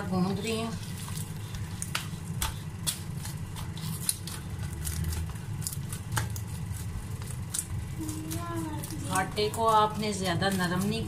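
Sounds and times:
dough slapping in metal bowl: 0.0s - 11.0s
steady low hum: 0.0s - 11.0s.

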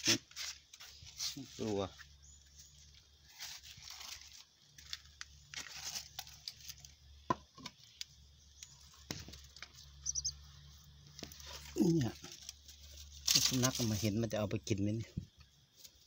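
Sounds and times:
dry leaves rustling and crinkling: 0.0s - 7.0s, 11.1s - 14.5s.

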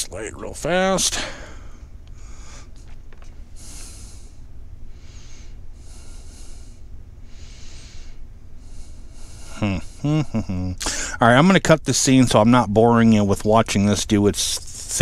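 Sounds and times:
steady low hum: 0.0s - 15.0s
person breathing: 1.1s - 2.8s, 3.5s - 10.2s, 10.8s - 11.2s.

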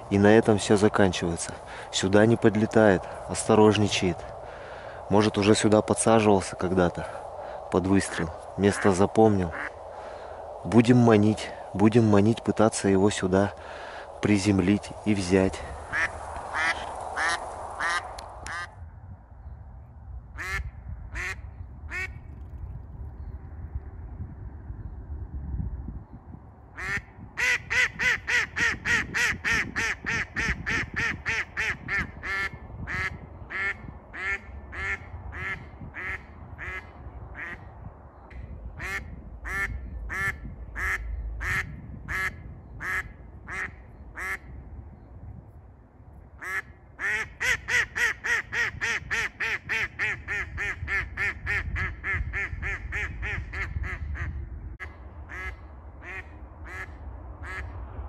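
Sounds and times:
wind rumble on microphone: 0.0s - 58.0s
duck quacking: 15.9s - 18.7s.

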